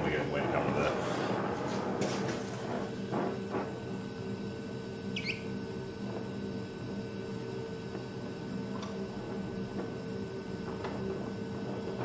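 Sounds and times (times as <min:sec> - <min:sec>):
torch flame hissing: 0:00.0 - 0:07.5.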